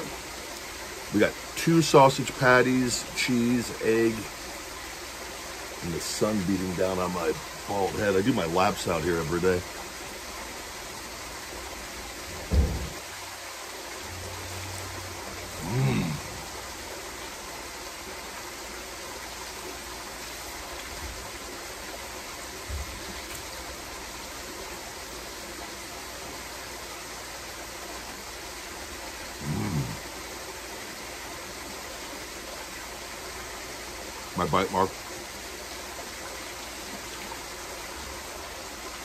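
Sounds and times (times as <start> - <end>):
rushing water noise: 0.0 - 39.0
low thump: 12.3 - 13.0
man humming: 15.5 - 16.5, 29.4 - 30.0.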